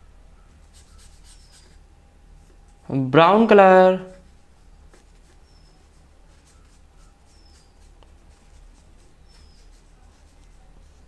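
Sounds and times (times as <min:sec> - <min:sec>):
faint high chirps: 0:00.0 - 0:01.8, 0:05.3 - 0:07.9, 0:09.0 - 0:10.9
steady low hum: 0:00.0 - 0:11.0.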